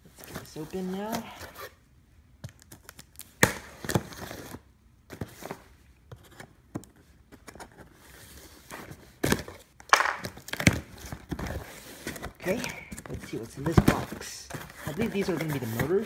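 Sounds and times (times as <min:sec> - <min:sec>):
cardboard rustling: 0:03.6 - 0:16.0
box knocks and scrapes: 0:08.6 - 0:16.0.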